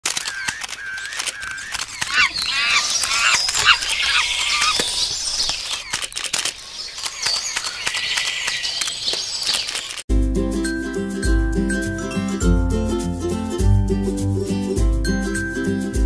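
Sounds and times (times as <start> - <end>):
quick pops and clicks: 0.0 - 10.0
squeaky chirping glides: 0.0 - 10.0.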